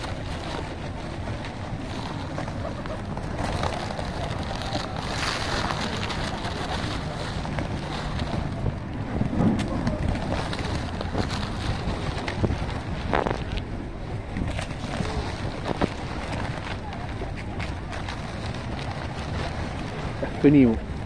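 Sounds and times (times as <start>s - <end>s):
pigeon wings flapping: 0.0s - 13.6s
wind rumbling on microphone: 0.0s - 21.0s.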